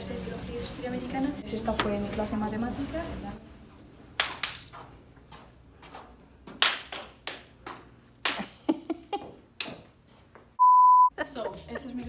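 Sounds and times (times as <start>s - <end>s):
sharp hand claps: 4.2s - 4.7s, 6.6s - 8.5s.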